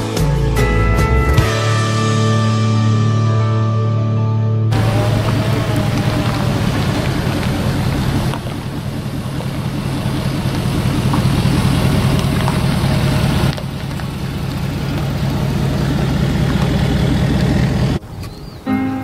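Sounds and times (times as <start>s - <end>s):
pickup truck engine driving slowly: 4.7s - 18.6s.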